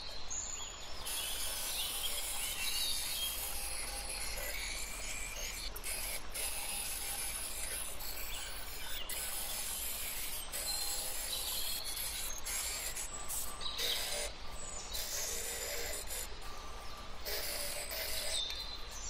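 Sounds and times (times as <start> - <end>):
glass grinder motor hum: 0.9 - 19.0
grinding bit scraping glass: 1.0 - 19.0.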